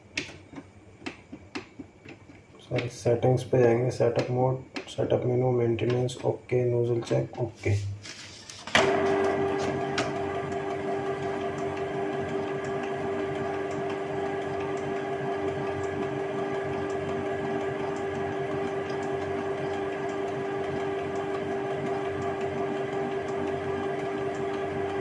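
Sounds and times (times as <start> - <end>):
faint printer ticks: 3.6 - 5.1
printer motor hum: 8.6 - 25.0.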